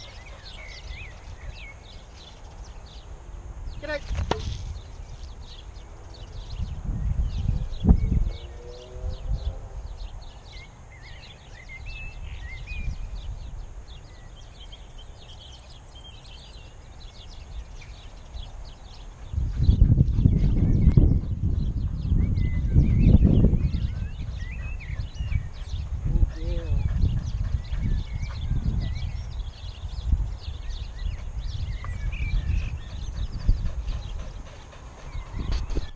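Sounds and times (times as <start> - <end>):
bird trill: 0.0 - 3.1, 10.6 - 19.1, 22.1 - 35.9
wind rumble on microphone: 0.0 - 14.8, 16.9 - 35.9
small birds chirping: 0.0 - 35.9.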